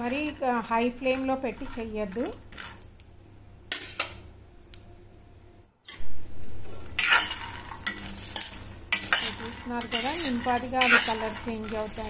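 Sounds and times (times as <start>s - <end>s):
spoon scraping pan: 0.0s - 2.9s, 5.9s - 12.0s.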